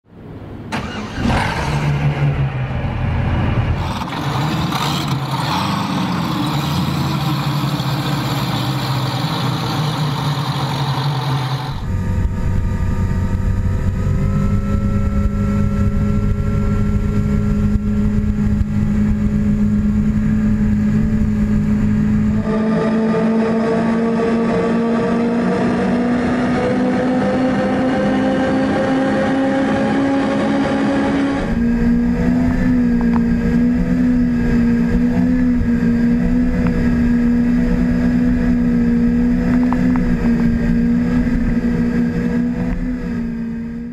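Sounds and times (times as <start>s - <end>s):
outboard engines running: 0.7s - 29.0s, 29.6s - 43.9s.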